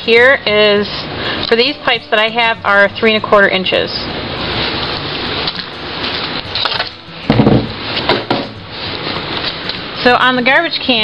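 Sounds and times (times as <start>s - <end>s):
objects rustling and knocking: 4.6s - 9.9s
low thump: 7.3s - 8.5s.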